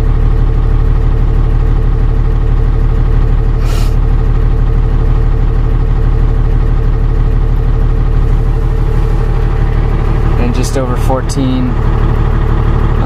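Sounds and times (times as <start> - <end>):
diesel engine idling: 0.0 - 13.0
short hiss: 3.6 - 4.0.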